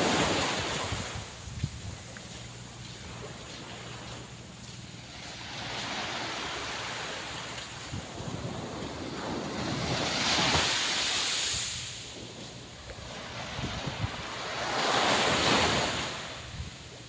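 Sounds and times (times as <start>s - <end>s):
wind buffeting microphone: 0.0s - 2.2s, 7.8s - 10.8s, 11.6s - 16.9s
small waves breaking on shore: 0.0s - 16.7s.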